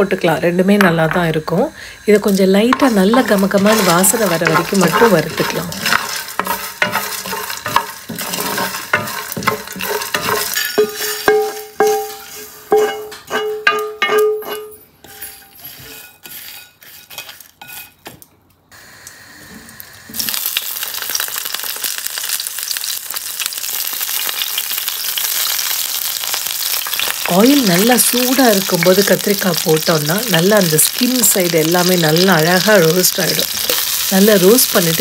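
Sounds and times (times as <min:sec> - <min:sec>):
hot oil sizzling: 0:00.6 - 0:14.5, 0:18.8 - 0:35.0
spatula scraping a pan: 0:02.7 - 0:18.0.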